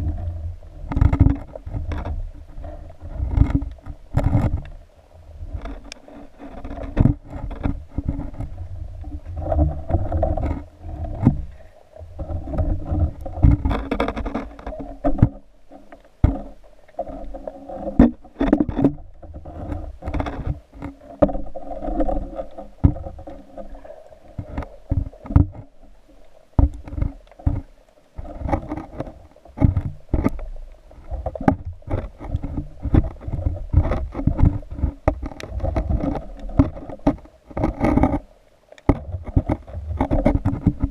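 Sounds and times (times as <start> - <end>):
knocks and clicks underwater: 0.0 - 40.9
low underwater rumble: 0.0 - 40.9
water sloshing and slapping: 0.0 - 40.9.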